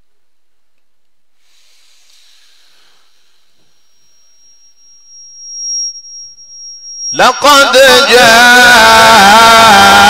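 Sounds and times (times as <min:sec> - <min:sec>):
faint hiss: 0:01.3 - 0:03.8
high-pitched feedback whistle: 0:02.5 - 0:10.0.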